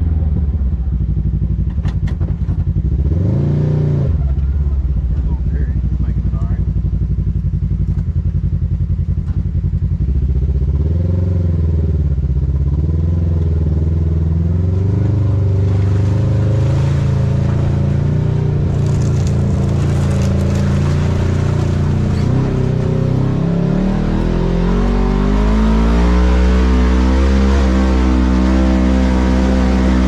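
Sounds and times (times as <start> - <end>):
engine revving: 2.8 - 4.4, 10.0 - 30.0
tyre and trail noise: 14.4 - 26.4
sharp rattles and knocks: 18.6 - 23.0.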